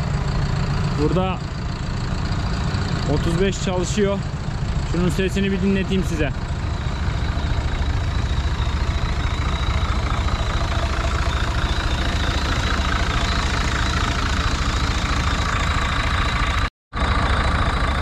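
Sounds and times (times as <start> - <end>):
tractor engine idling: 0.0 - 18.0.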